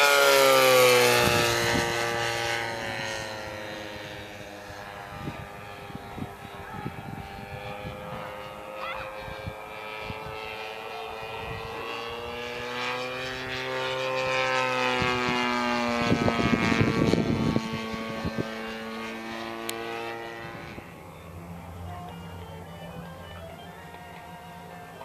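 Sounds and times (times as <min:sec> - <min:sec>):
model plane propeller engine droning: 0:00.0 - 0:25.0
low rumbling gusts: 0:14.8 - 0:25.0.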